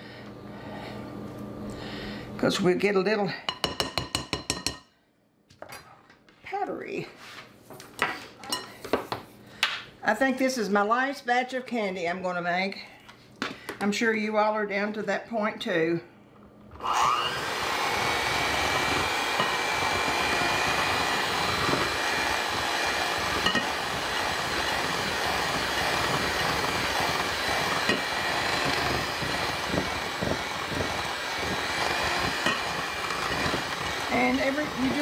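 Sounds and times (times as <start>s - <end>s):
electric hand mixer running: 16.7s - 35.0s.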